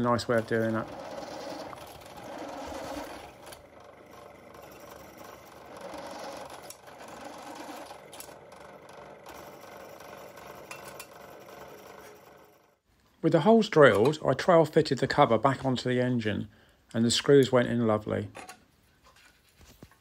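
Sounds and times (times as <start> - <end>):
drill bit scraping metal: 0.0 - 12.6
pillar drill humming: 0.0 - 12.7.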